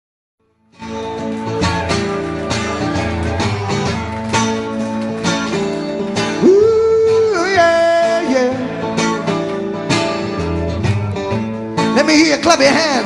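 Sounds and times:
strummed acoustic guitar: 0.7 - 13.0.

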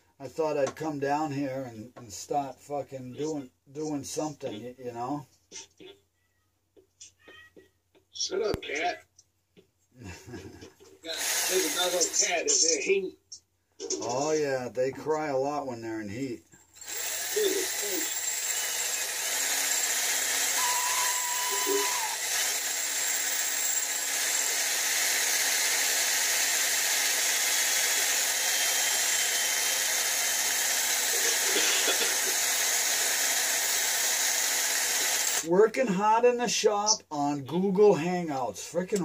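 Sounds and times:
cordless drill running: 11.0 - 12.3, 16.7 - 35.5.

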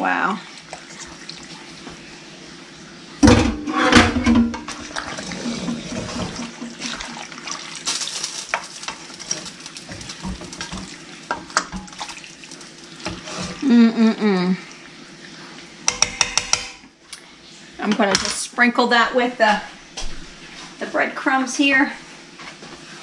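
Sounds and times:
wet sloshing of stirred food: 4.6 - 13.7
spoon scraping and clicking on pan: 15.9 - 16.8.

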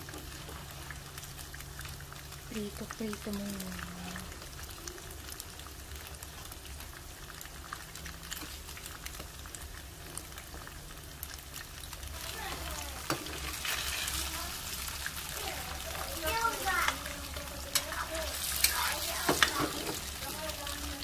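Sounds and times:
tofu sizzling in oil: 0.0 - 21.0
metal spoon turning food: 12.2 - 21.0.

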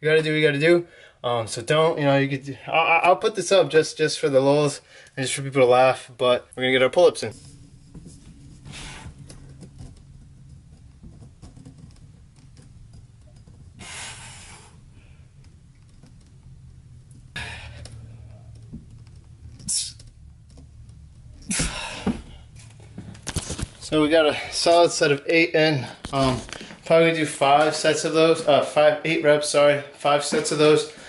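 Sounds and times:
sharp exhales: 13.8 - 15.2, 17.3 - 18.1
man breathing hard: 13.8 - 15.4, 17.3 - 18.3, 21.5 - 22.6.

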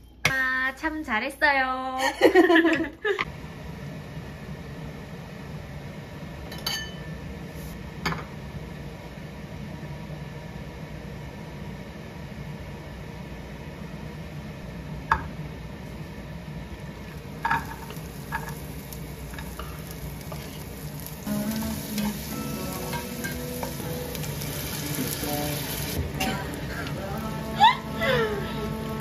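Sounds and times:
steady low hum: 2.0 - 29.0
chili and garlic sizzling: 16.4 - 29.0.

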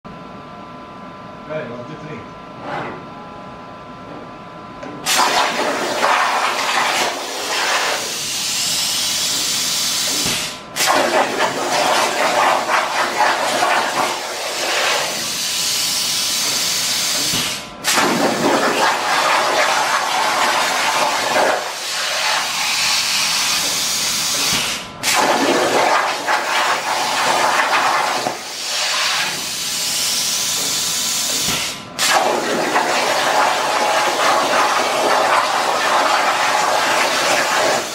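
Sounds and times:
plasma torch hissing: 5.1 - 15.6, 16.2 - 37.9.

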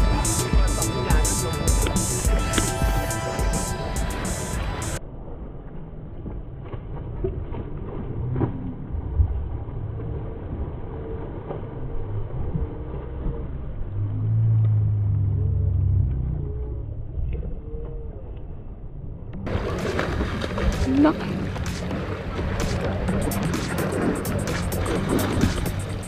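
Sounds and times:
background music: 0.0 - 5.0, 19.5 - 26.0
low hum: 0.0 - 26.0
low outdoor rumble: 0.0 - 26.0
ray splashing in water: 19.5 - 23.2.

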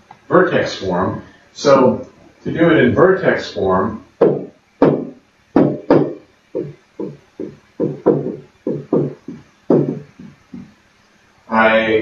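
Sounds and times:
pen knocking on whiteboard: 4.2 - 10.7.

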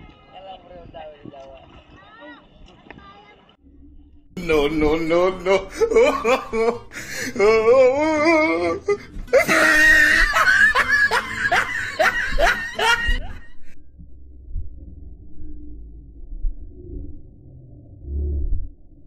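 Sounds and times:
loud laughter: 5.4 - 13.6
person crying out: 5.5 - 10.5.

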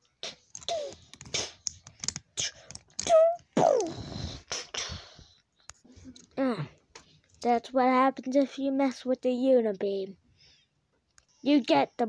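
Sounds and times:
hissing pssh blasts and clicks: 0.2 - 5.0
child making blast sound effects: 2.4 - 5.1.

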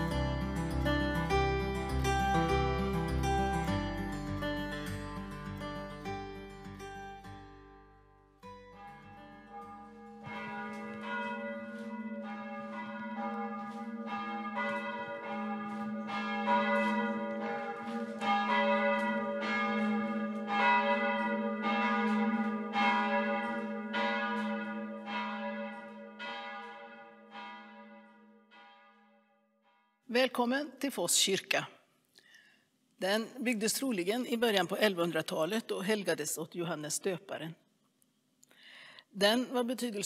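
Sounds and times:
church bell ringing: 0.0 - 3.7, 8.5 - 29.3.

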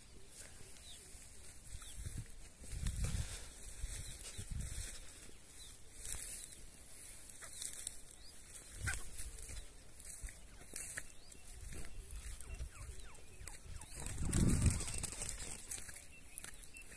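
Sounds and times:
footsteps through dry grass: 0.0 - 16.9
faint high chirps: 5.6 - 16.9.

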